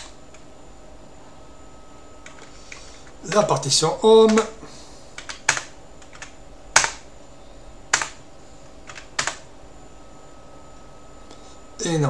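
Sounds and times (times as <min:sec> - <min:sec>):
keyboard key presses: 0:07.9 - 0:08.2, 0:08.9 - 0:09.4.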